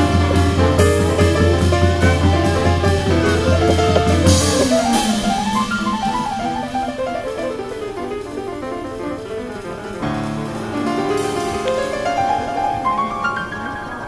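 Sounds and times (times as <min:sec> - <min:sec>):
steady drum beat: 0:00.0 - 0:12.6
bass: 0:00.0 - 0:12.9
guitar: 0:00.0 - 0:14.0
melody line: 0:01.0 - 0:09.0.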